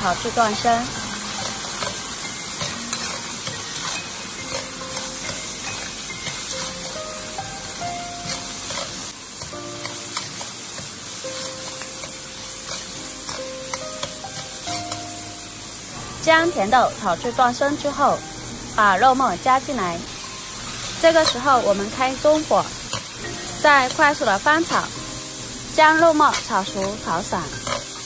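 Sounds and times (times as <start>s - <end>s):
peas sizzling in hot fat: 0.0s - 28.0s
soft background music: 0.0s - 28.0s
metal ladle scraping a wok: 0.2s - 7.0s, 8.2s - 10.6s, 11.4s - 15.0s, 26.2s - 28.0s.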